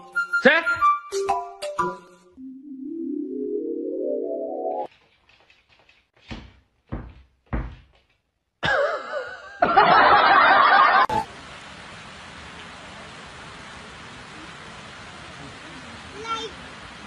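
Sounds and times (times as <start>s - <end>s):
dull thumps: 6.2s - 8.3s
burst of laughter: 8.6s - 11.1s
steady hiss: 9.8s - 17.0s.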